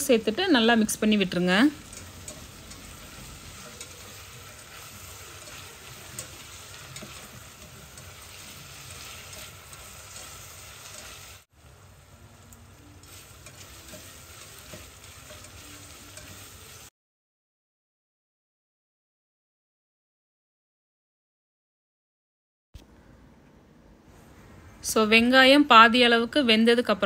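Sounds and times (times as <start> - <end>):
onions sizzling in oil: 0.0 - 16.9.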